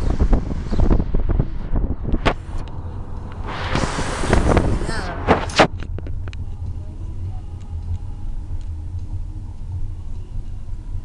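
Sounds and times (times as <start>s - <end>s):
car interior rumble: 0.0s - 11.0s
brief loud noise bursts: 3.4s - 5.7s.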